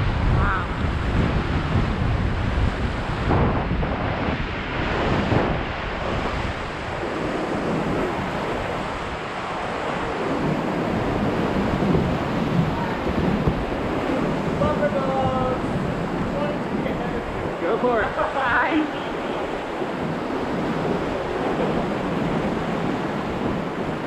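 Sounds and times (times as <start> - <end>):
low rumble on microphone: 0.0 - 9.1
whitewater rushing and splashing: 0.0 - 24.0.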